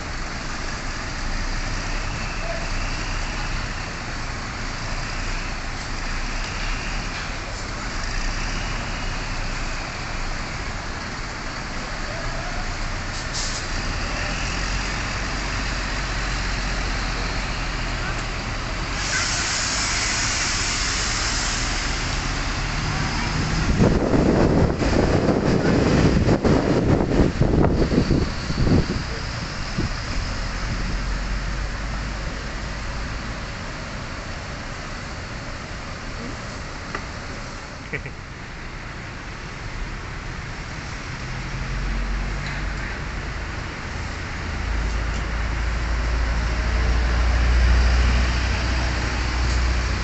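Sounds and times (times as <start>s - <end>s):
diesel bus engine running: 0.0s - 50.0s
loud rough rush of noise: 0.0s - 50.0s
compressed air hiss: 13.1s - 13.7s, 18.9s - 22.0s.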